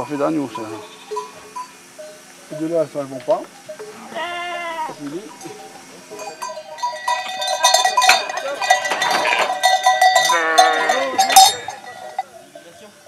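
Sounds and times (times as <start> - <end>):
sheep bells clanking: 0.0 - 13.0
sheep bleating: 0.6 - 1.3, 3.9 - 5.1, 8.1 - 11.9.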